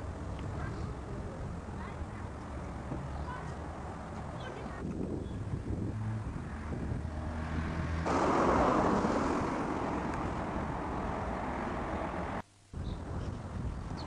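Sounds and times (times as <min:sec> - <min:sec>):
road noise: 0:00.0 - 0:12.4
vehicle engine hum: 0:00.0 - 0:12.4
rush of noise: 0:05.9 - 0:12.4.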